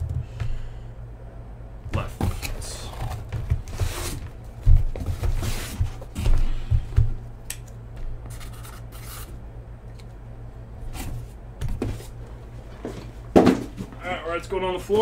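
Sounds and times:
cardboard scraping and rubbing: 0:02.1 - 0:06.3, 0:08.3 - 0:09.3.

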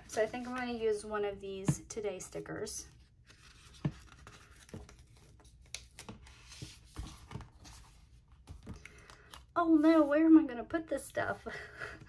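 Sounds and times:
paper rustling: 0:00.0 - 0:01.0, 0:03.0 - 0:10.1.

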